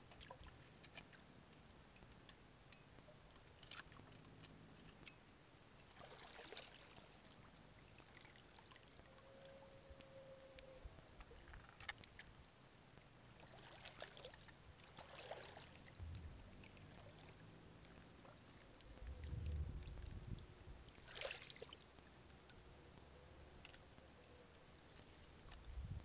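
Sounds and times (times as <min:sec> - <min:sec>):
feet wading through shallow water: 0:00.0 - 0:02.4, 0:03.0 - 0:05.1, 0:05.7 - 0:09.2, 0:11.1 - 0:22.4, 0:23.0 - 0:26.0
low rumbles: 0:16.0 - 0:21.0.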